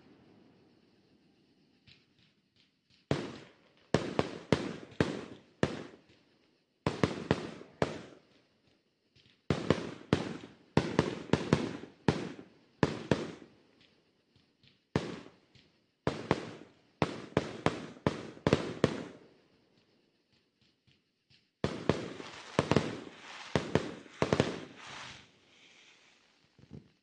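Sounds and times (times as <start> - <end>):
fireworks bangs: 1.8 - 6.2, 6.8 - 8.3, 9.2 - 13.5, 14.8 - 19.3, 21.6 - 27.0.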